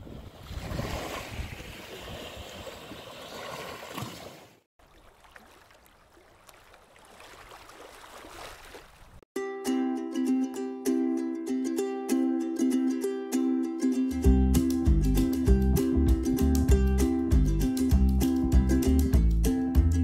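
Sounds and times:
small waves washing on sand: 0.0s - 9.2s
plucked ukulele music: 9.4s - 20.0s.

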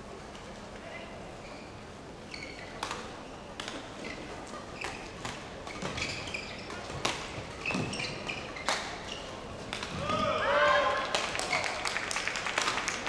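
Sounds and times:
court shoes squeaking: 1.4s - 10.1s.

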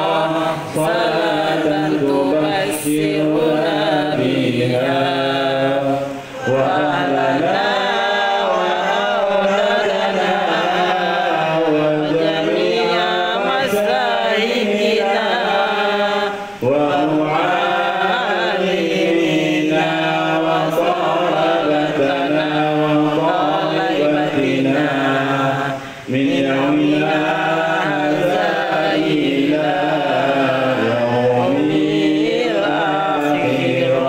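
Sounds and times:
man chanting into a microphone: 0.0s - 34.0s.

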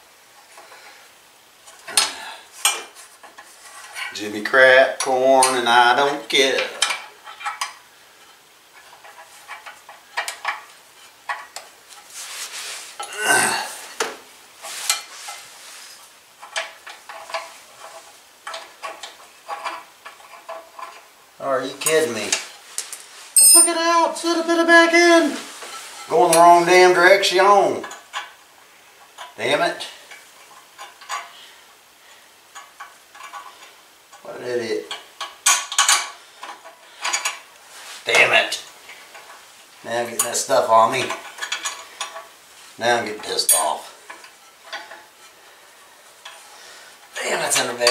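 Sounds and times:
metal tools clinking and scraping: 1.7s - 4.3s, 5.0s - 13.2s, 14.6s - 21.0s, 21.7s - 23.9s, 30.1s - 31.4s, 34.8s - 39.4s, 40.0s - 45.4s, 46.1s - 47.9s
man groaning: 13.1s - 13.8s
metal tools clinking on engine: 23.4s - 23.8s.

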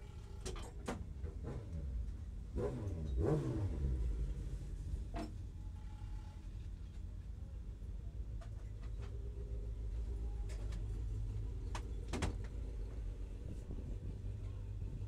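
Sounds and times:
car engine low rumble: 0.0s - 15.0s.

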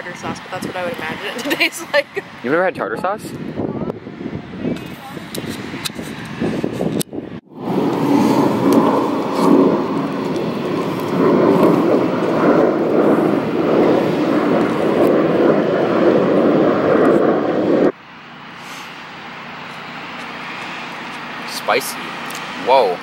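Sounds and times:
outdoor background: 0.0s - 23.0s
loud vehicle roar: 5.3s - 23.0s.

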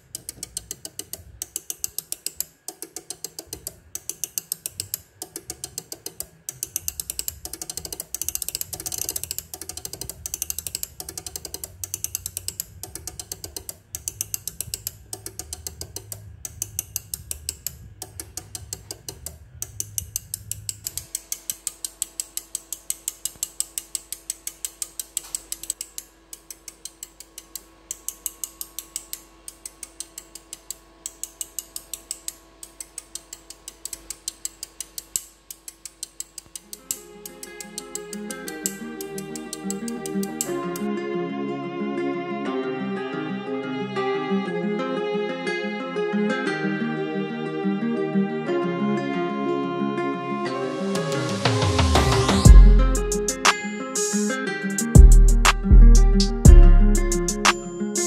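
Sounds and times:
relays clicking: 0.0s - 40.6s.

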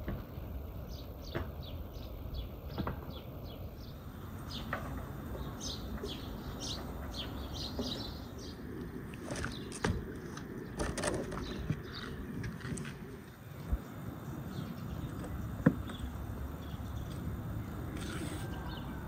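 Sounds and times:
small birds chirping: 0.0s - 19.0s
sharp clicks and knocks: 9.1s - 13.1s.

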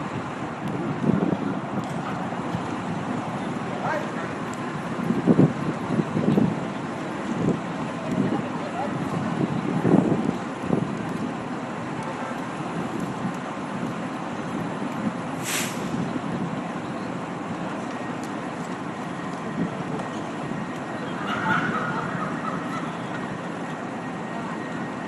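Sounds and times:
rumble of vehicles: 0.0s - 25.0s
street noise: 0.0s - 25.0s
short hiss: 15.4s - 16.0s.

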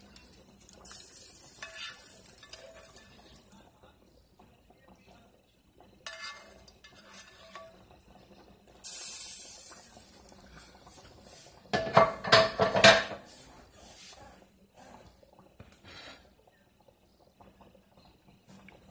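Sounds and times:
metal pan and utensils clattering: 0.2s - 3.5s, 6.0s - 7.9s, 11.7s - 13.3s
spatula scraping a frying pan: 0.9s - 3.4s, 6.0s - 7.9s.

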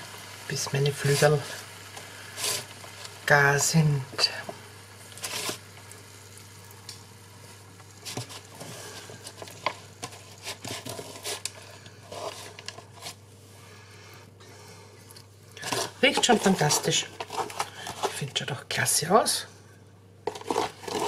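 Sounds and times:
low steady hum: 0.0s - 21.0s
utensil scraping plastic tray: 15.6s - 18.3s, 20.3s - 21.0s.

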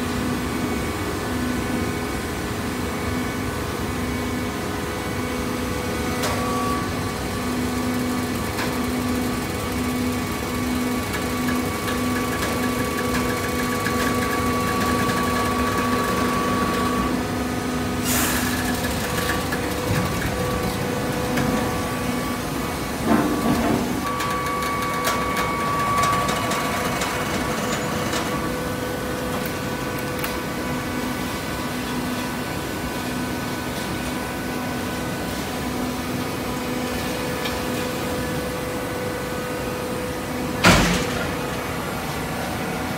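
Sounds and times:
baler hum with whine: 0.0s - 42.9s.

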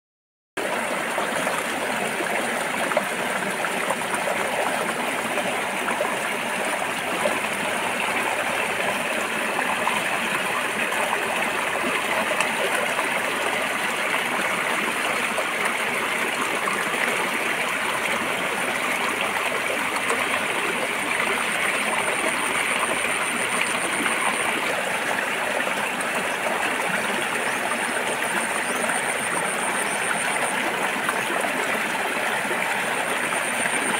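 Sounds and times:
stream rushing over rocks: 0.6s - 33.9s.

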